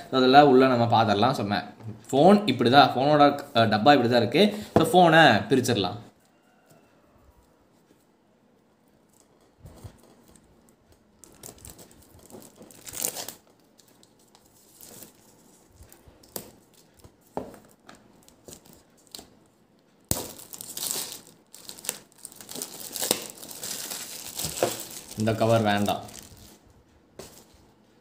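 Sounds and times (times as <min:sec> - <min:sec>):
plastic wrap crinkling: 0:09.1 - 0:19.3, 0:20.0 - 0:26.6.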